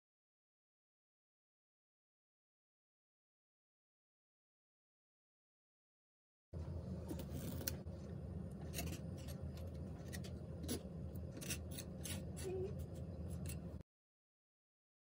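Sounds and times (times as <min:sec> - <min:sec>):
steady low hum: 0:06.6 - 0:13.8
palette knife scraping paint: 0:07.1 - 0:13.8.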